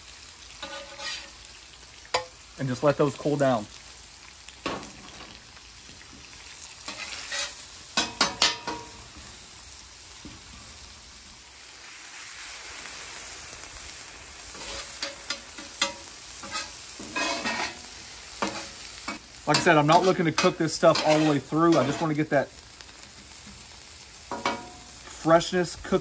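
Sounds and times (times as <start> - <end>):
food sizzling on a griddle: 0.0 - 26.0
metal spatula scraping steel: 0.6 - 1.4, 6.9 - 8.9, 14.5 - 22.2.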